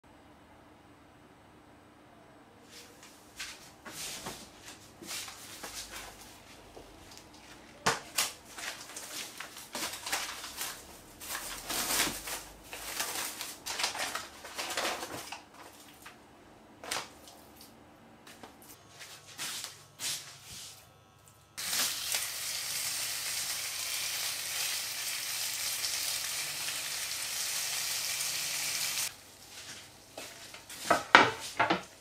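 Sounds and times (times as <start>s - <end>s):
plastic and paper rustling: 5.2s - 16.2s, 16.8s - 17.7s.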